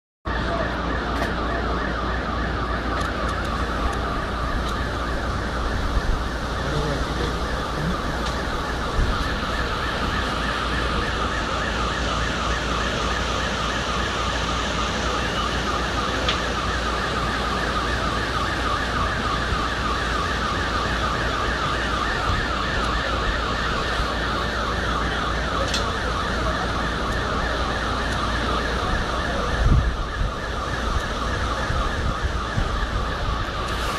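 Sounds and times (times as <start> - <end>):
electronic siren warbling: 0.3 - 33.9
steady low rumble: 2.0 - 17.5.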